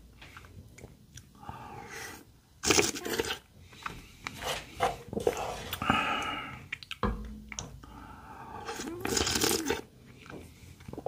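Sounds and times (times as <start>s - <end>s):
spoon clicks and mouth sounds: 6.7s - 7.7s.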